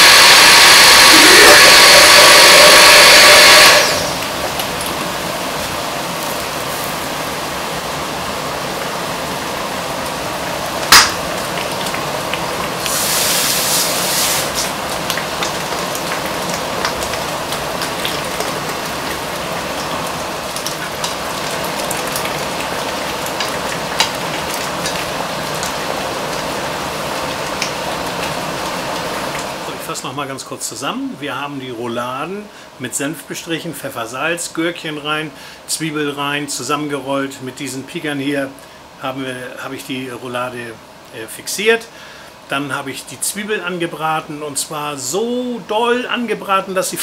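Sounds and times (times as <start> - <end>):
meat sizzling in a frying pan: 0.0 - 29.8
crackles and pops: 10.8 - 13.6.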